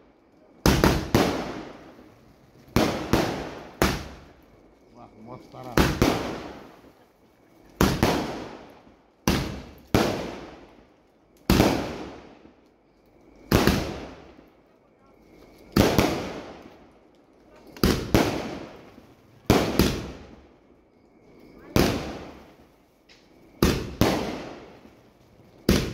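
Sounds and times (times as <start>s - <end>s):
fireworks bangs: 0.6s - 4.4s, 5.2s - 7.0s, 7.6s - 10.8s, 11.4s - 12.5s, 13.5s - 14.4s, 15.7s - 16.8s, 17.6s - 20.5s, 21.5s - 25.9s.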